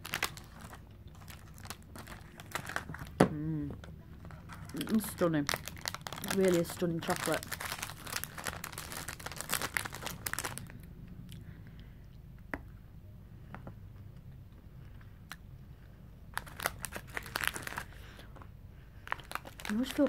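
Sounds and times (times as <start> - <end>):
plastic packaging crinkling: 0.0 - 3.2, 4.2 - 10.8, 16.3 - 18.1, 19.0 - 20.0.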